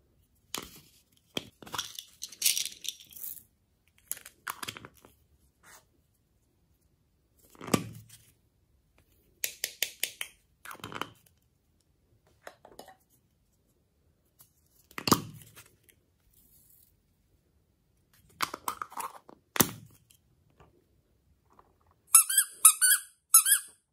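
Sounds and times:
plastic cups knocking and tapping: 12.3 - 13.0.

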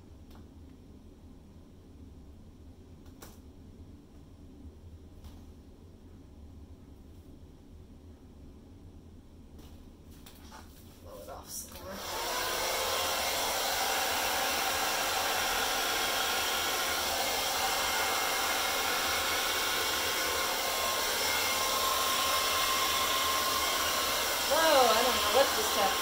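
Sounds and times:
hair dryer blowing air: 11.7 - 26.0.

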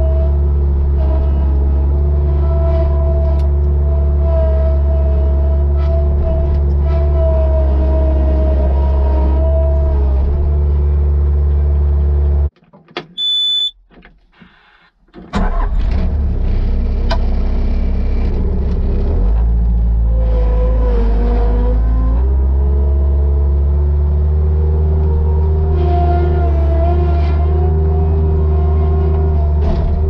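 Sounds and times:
loader engine droning: 0.0 - 12.5, 13.2 - 30.0
short high electronic beep: 13.2 - 13.8.

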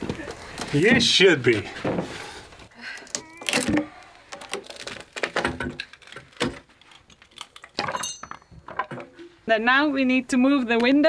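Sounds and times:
wooden shed parts knocking and clattering: 0.0 - 2.2, 5.2 - 9.2.

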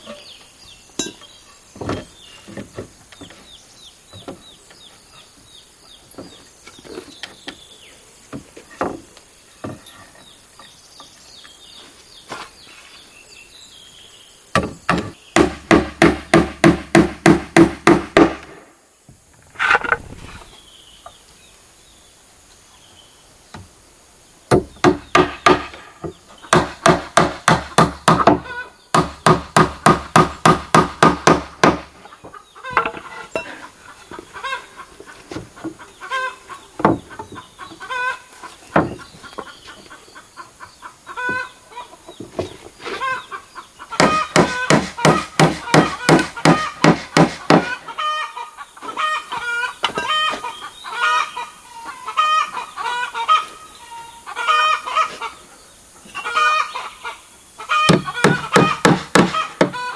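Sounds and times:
chickens clucking: 0.0 - 13.1, 31.8 - 59.9
hammer driving nails into wood: 44.0 - 47.7.

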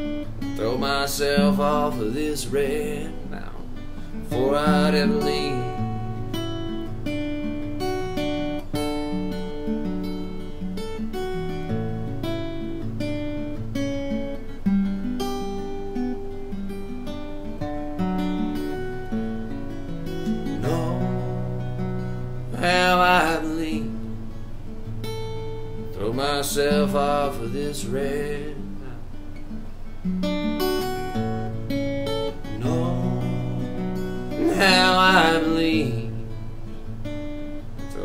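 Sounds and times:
acoustic guitar playing: 0.0 - 38.0
person singing wordless note: 34.3 - 36.0.

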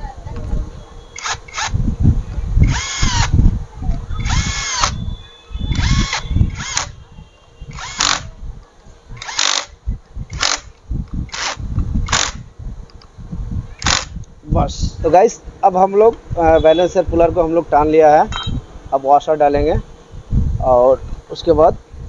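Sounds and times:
electric wrench bursts: 1.1 - 1.8, 2.6 - 3.4, 4.2 - 7.0, 7.6 - 8.4, 9.2 - 12.5, 13.8 - 14.3.

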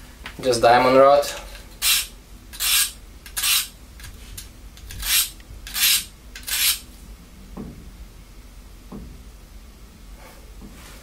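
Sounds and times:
knife rasping on sharpening rod: 1.8 - 3.7, 5.0 - 6.8.

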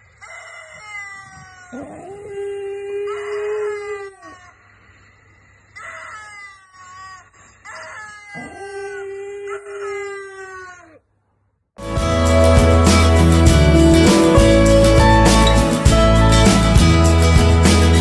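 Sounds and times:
dog howling: 0.2 - 4.4, 7.9 - 11.0.

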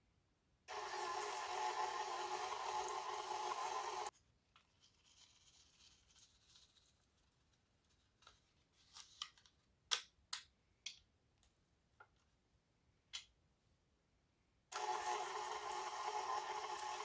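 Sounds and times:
stand mixer motor running: 0.7 - 4.1, 14.8 - 17.0.

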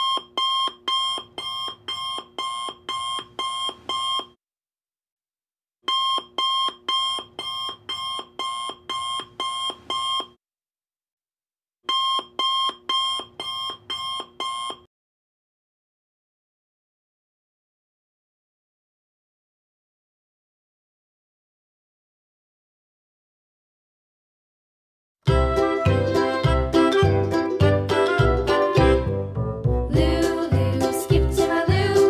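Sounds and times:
alarm clock beeping: 0.0 - 4.3, 5.9 - 10.3, 11.9 - 14.8.

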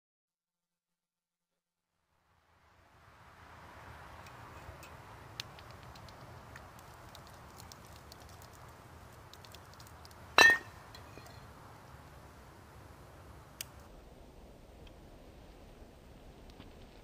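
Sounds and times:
faint steady hiss: 2.0 - 17.0
small ticks: 4.2 - 10.2
glass clink with ring: 10.4 - 11.3.

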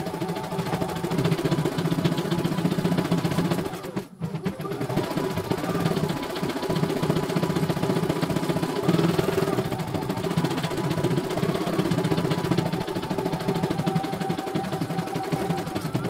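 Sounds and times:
embroidery machine needle chatter: 4.5 - 16.0.

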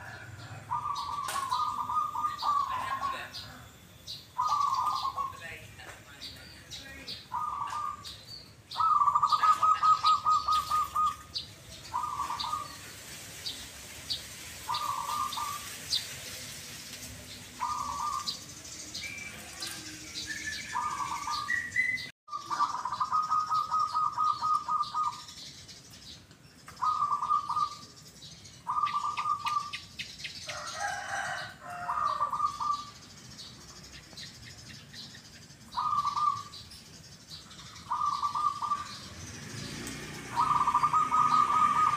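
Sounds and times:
doves cooing: 0.0 - 3.8, 4.4 - 5.6, 7.1 - 13.6, 14.6 - 16.6, 17.2 - 25.4, 26.7 - 27.8, 28.7 - 29.8, 30.5 - 33.0, 35.7 - 36.6, 37.5 - 41.9.

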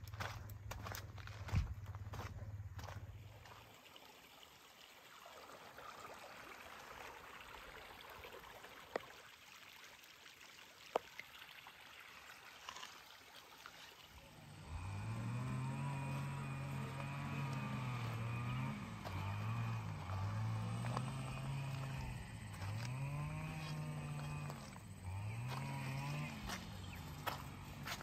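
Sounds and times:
engine starting and running: 14.3 - 28.0.

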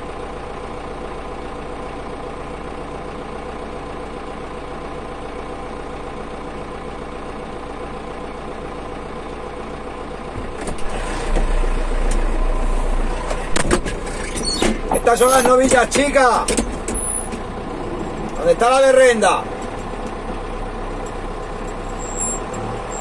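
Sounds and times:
diesel tractor engine idling: 0.0 - 23.0
engine knocks: 10.2 - 23.0.

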